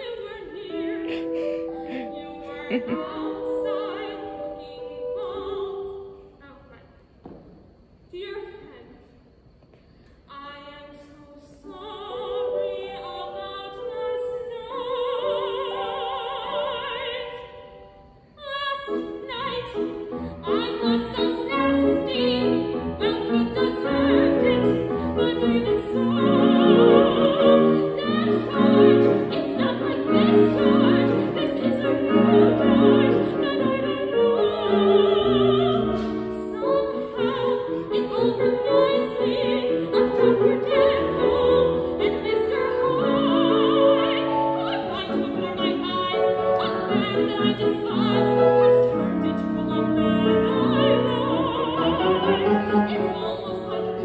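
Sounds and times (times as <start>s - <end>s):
grand piano accompaniment: 0.0s - 6.4s, 18.9s - 54.0s
woman singing classical style: 0.0s - 7.0s, 10.3s - 54.0s.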